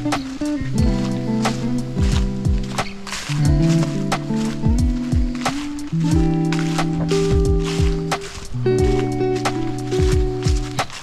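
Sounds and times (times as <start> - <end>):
background music with steady beat: 0.0 - 11.0.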